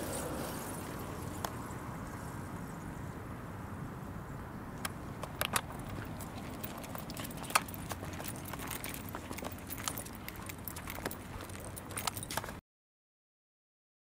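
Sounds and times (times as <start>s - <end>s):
low outdoor rumble: 0.0s - 12.6s
dog claws clicking on pavement: 4.8s - 12.6s.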